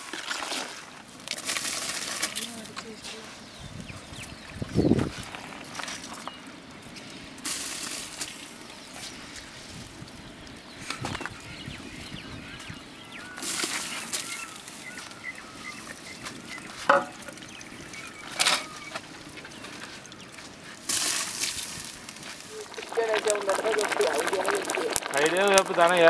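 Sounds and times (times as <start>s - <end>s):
rice pouring into liquid: 0.0s - 2.4s, 20.6s - 26.0s
boiling stock: 0.0s - 26.0s
knocks: 16.9s - 17.2s.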